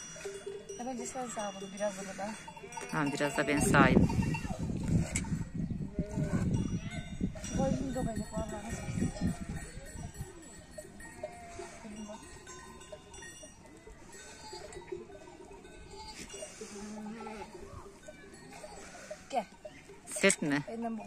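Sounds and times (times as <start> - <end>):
sheep bells tinkling: 0.0 - 21.0
sheep bleating: 14.1 - 15.1.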